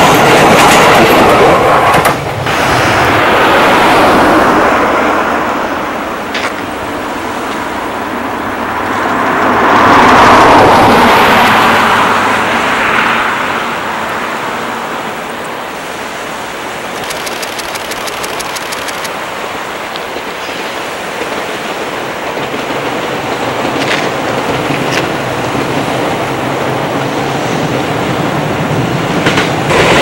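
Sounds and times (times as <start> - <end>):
electric train passing: 0.0 - 30.0
fast high ticks: 16.8 - 19.2.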